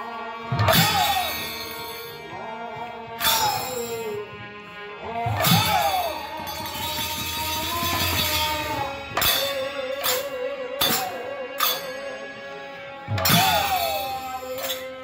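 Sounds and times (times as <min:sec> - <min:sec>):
hand cymbals clashing: 0:00.7 - 0:02.2, 0:03.2 - 0:04.2, 0:05.4 - 0:12.2, 0:13.2 - 0:15.0.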